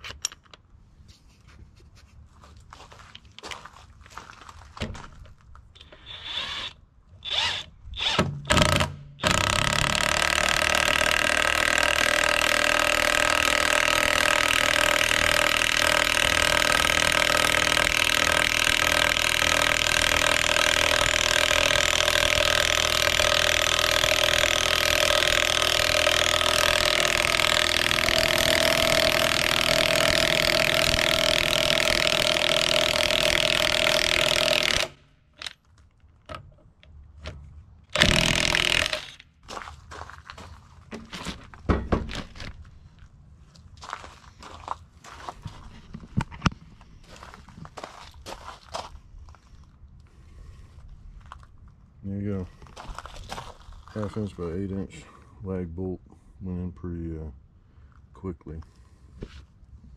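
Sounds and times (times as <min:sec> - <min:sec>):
impact wrench hammering: 0:08.1 - 0:35.5, 0:38.0 - 0:39.2.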